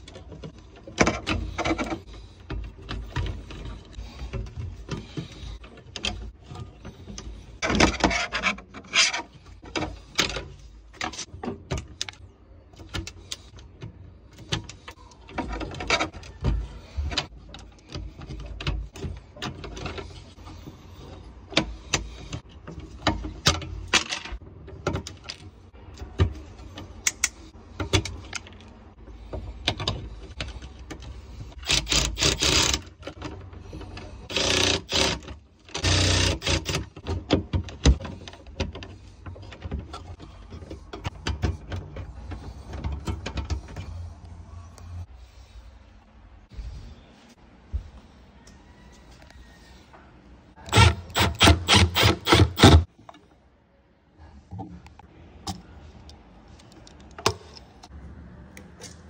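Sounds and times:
wires scraping metal box: 0.0s - 45.1s.

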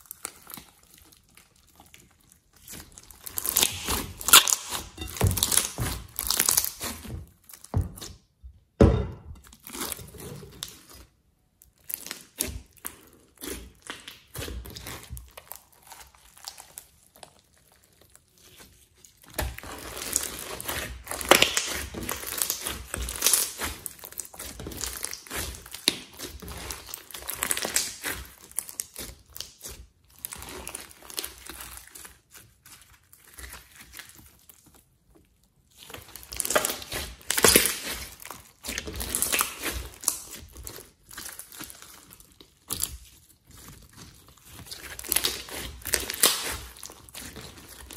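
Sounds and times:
beads crackling in slime: 0.0s - 7.7s, 9.6s - 34.8s, 35.6s - 47.9s
slime squelching: 0.0s - 47.9s.

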